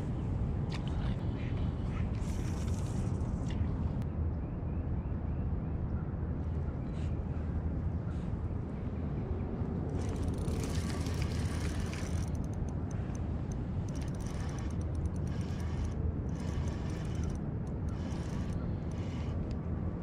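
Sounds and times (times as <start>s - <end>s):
fishing reel whirring and clicking: 10.0s - 19.6s.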